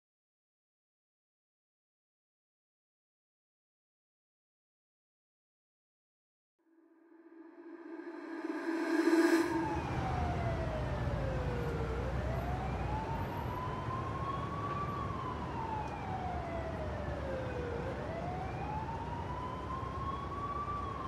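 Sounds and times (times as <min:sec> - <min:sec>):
held low tone: 0:06.8 - 0:12.0
siren wailing: 0:07.0 - 0:21.0
low steady rumble: 0:07.2 - 0:11.8.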